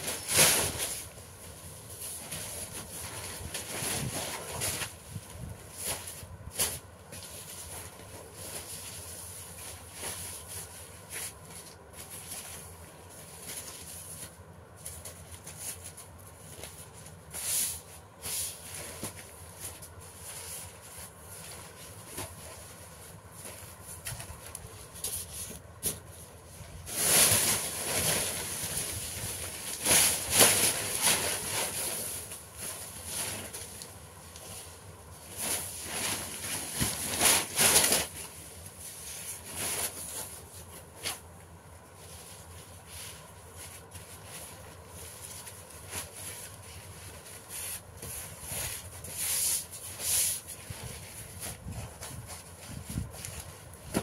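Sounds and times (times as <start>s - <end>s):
paper rustling and crinkling: 0.0s - 54.0s.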